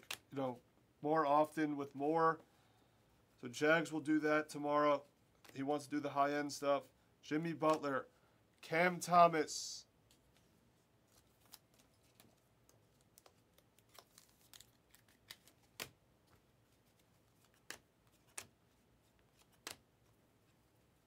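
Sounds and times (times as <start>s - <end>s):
foil wrapper crinkling: 13.0s - 15.9s.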